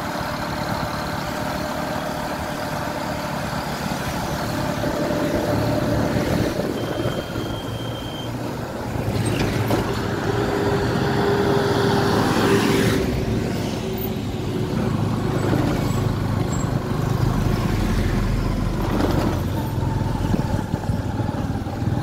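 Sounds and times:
road and wind noise: 0.0s - 22.0s
trucks and cars passing: 0.0s - 22.0s
motorcycle engine running: 18.6s - 22.0s.

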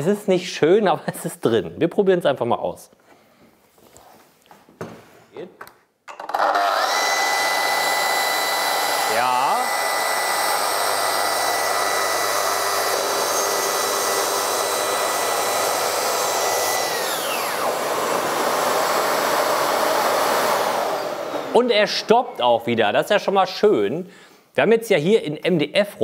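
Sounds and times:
workshop vacuum running: 6.1s - 22.7s
track saw whining: 6.2s - 22.7s.

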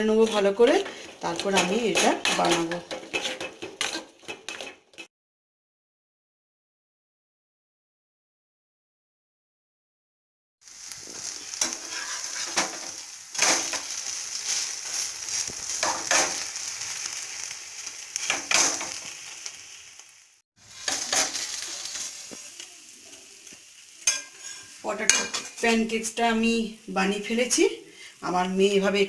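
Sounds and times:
pancake sizzling in oil: 0.0s - 5.1s, 10.6s - 29.0s
spoon and spatula scraping pan: 0.1s - 5.1s, 11.1s - 17.4s, 18.2s - 19.3s, 20.7s - 22.4s, 24.0s - 25.6s.

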